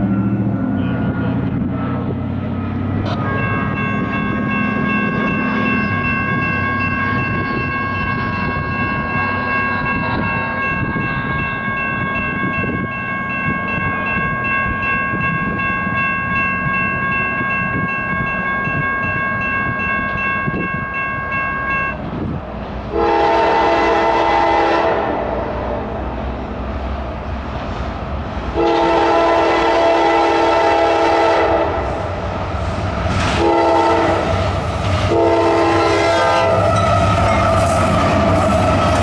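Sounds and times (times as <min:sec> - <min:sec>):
low train rumble: 0:00.0 - 0:39.0
train air horn blast: 0:22.9 - 0:25.9, 0:28.5 - 0:32.1, 0:33.2 - 0:39.0.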